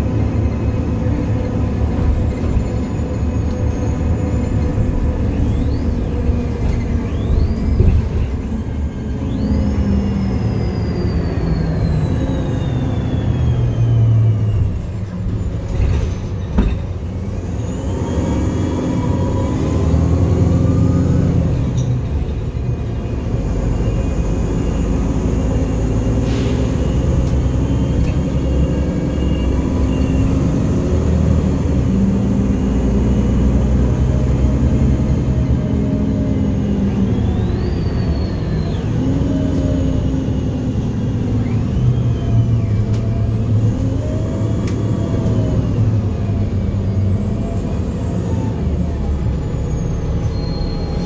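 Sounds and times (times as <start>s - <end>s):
bus engine and road rumble: 0.0s - 51.0s
whining tones gliding in pitch: 2.4s - 15.7s, 26.8s - 51.0s
knocks from bus body: 15.8s - 17.0s.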